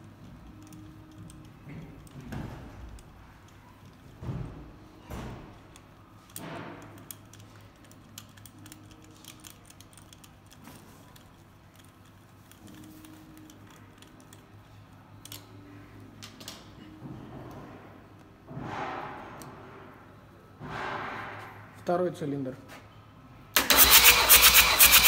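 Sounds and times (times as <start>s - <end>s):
ratchet wrench clicking: 23.6s - 25.0s.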